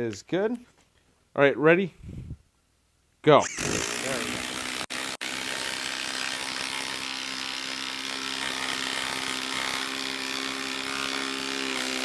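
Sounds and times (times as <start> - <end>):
impact driver hammering: 4.0 - 12.0.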